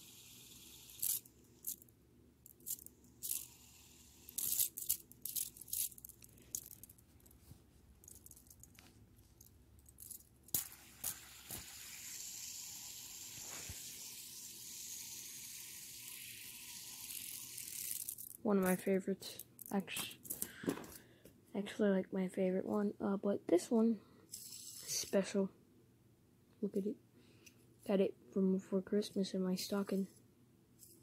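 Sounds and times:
fidget spinner clicking: 0:00.0 - 0:07.0, 0:10.0 - 0:18.9
fidget spinner whirring: 0:00.0 - 0:07.3, 0:09.9 - 0:18.9, 0:24.3 - 0:25.2.

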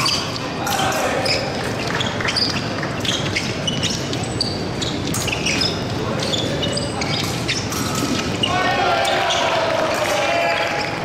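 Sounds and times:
murmur of voices: 0:00.0 - 0:02.2, 0:05.9 - 0:11.0
shoes squeaking on floor: 0:00.0 - 0:09.6.

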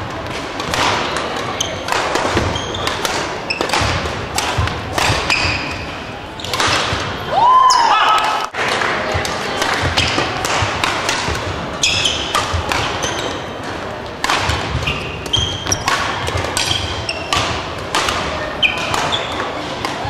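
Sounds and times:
busy sports hall background noise: 0:00.0 - 0:20.0
badminton rackets hitting shuttlecocks: 0:00.1 - 0:20.0
shoes squeaking on wooden floor: 0:01.6 - 0:03.9, 0:11.8 - 0:13.7, 0:14.7 - 0:17.4, 0:18.5 - 0:19.6.

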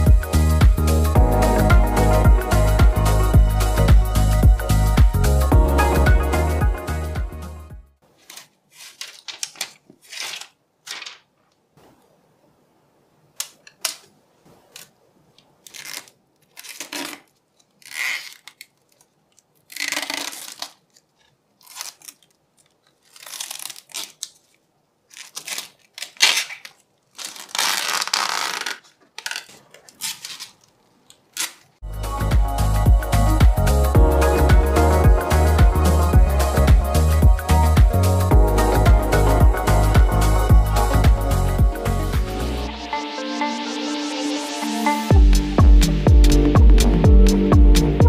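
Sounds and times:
plastic film crinkling: 0:08.0 - 0:12.0, 0:13.4 - 0:31.8.

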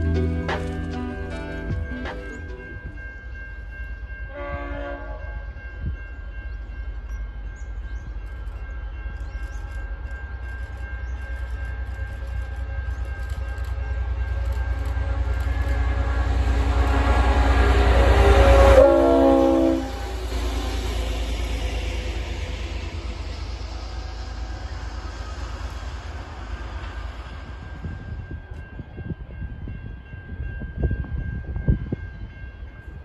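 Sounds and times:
locomotive engine and wheel rumble: 0:00.0 - 0:04.6, 0:05.5 - 0:31.8
locomotive horn blast: 0:04.3 - 0:05.4, 0:15.8 - 0:20.8.

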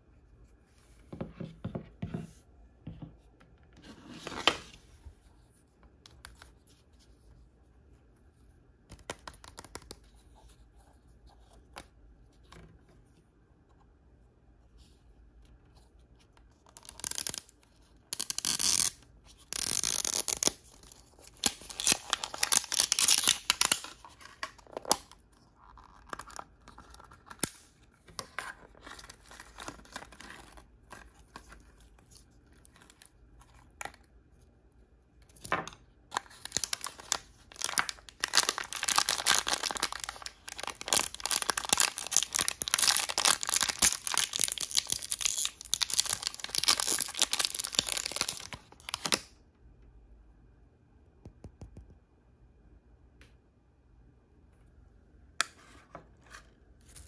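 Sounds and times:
plastic packaging crinkling: 0:19.5 - 0:27.6, 0:36.1 - 0:49.2.

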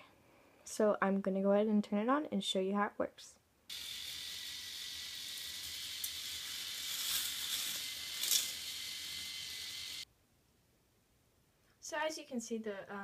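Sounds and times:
car clicking on plastic track: 0:03.7 - 0:10.0
small motor whirring with whine: 0:03.7 - 0:10.0.

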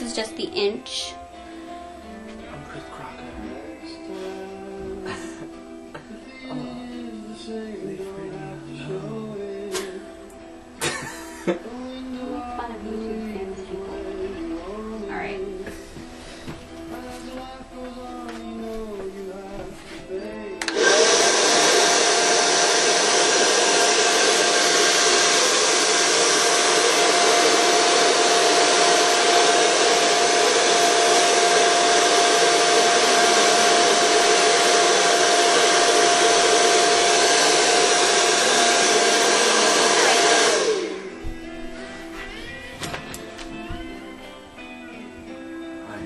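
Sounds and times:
hair dryer running: 0:20.6 - 0:42.0.

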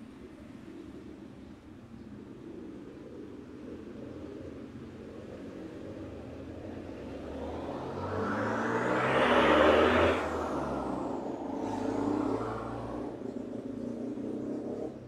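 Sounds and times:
motor vehicle passing: 0:05.5 - 0:15.0.

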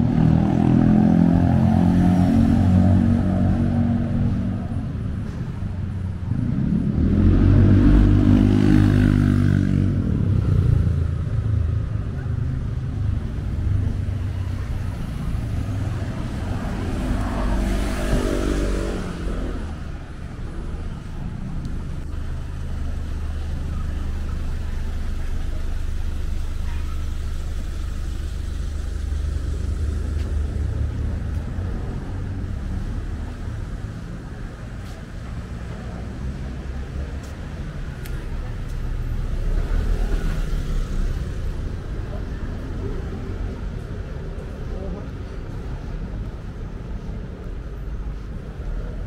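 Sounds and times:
vehicle passing close by: 0:00.0 - 0:05.1, 0:06.3 - 0:12.0, 0:12.6 - 0:22.6
low rumble of traffic: 0:00.0 - 0:49.0.

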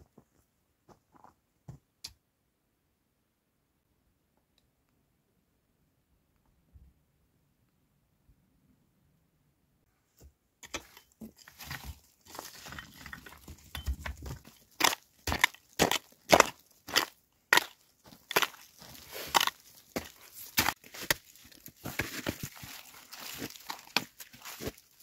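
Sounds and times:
digging tool striking stony soil: 0:10.6 - 0:24.8
stones and earth rattling: 0:10.6 - 0:25.0.

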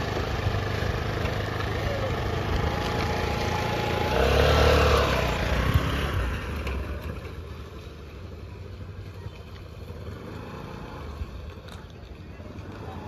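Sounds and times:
scooter engine revving: 0:00.0 - 0:13.0.

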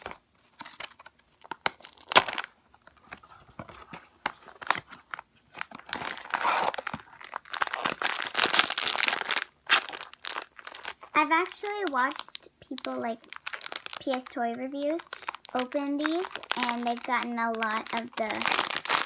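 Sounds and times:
foil bag crinkling: 0:05.6 - 0:19.0.

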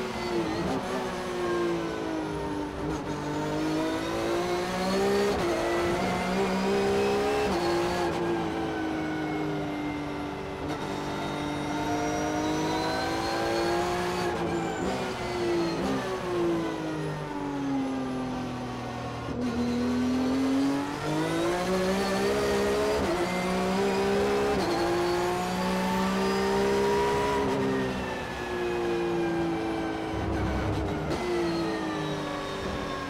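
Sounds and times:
race car engine revving: 0:29.8 - 0:32.8.

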